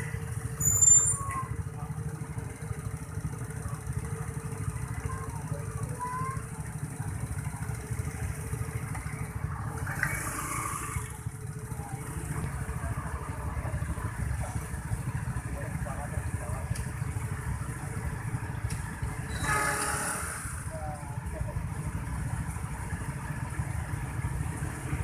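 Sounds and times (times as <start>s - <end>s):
motorcycle engines idling: 0.0s - 25.0s.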